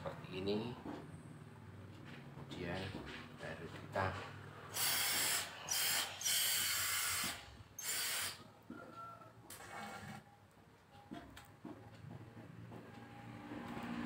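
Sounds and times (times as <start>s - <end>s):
steam iron hissing: 4.7s - 8.4s.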